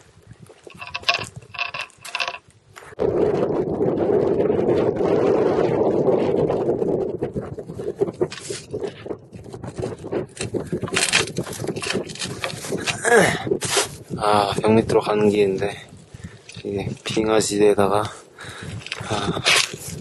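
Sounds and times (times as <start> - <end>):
wind on microphone: 0.0 - 20.0
scrapes and crunches: 0.4 - 3.0, 8.2 - 14.1, 18.6 - 20.0.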